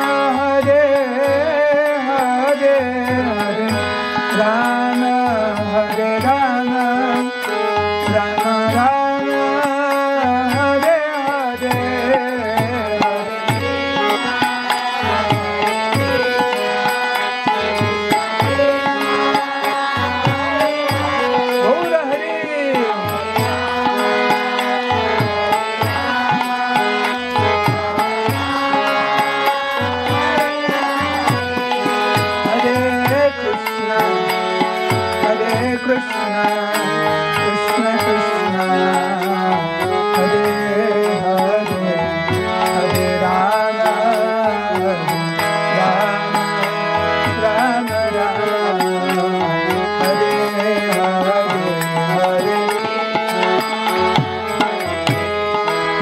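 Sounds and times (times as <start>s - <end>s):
man chanting: 0.0s - 55.0s
harmonium chords: 0.0s - 56.0s.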